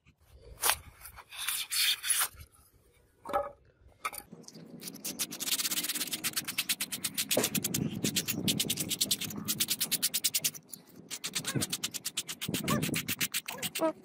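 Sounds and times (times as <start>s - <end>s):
sandpaper rubbing styrofoam: 0.6s - 2.4s, 4.8s - 14.0s
knife cutting styrofoam: 0.6s - 2.5s, 4.8s - 14.0s.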